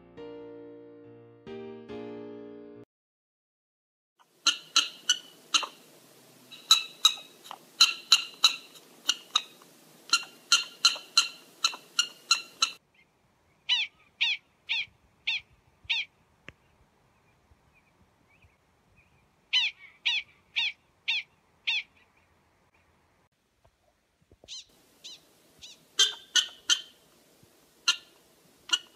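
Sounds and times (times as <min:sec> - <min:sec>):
prairie dogs chirping barks: 0:04.2 - 0:16.2, 0:19.0 - 0:22.9, 0:24.5 - 0:27.0, 0:27.8 - 0:28.9.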